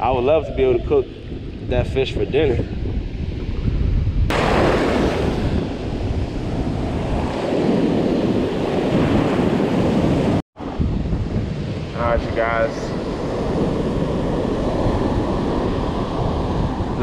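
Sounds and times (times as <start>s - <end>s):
wind buffeting microphone: 0.0s - 17.0s
ocean surf breaking: 4.3s - 17.0s.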